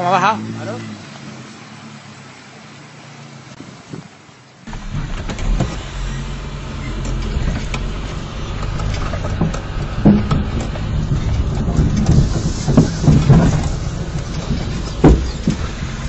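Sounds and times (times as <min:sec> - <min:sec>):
vehicle driving over dirt track: 0:03.8 - 0:16.0
knocks and rattles: 0:06.8 - 0:16.0.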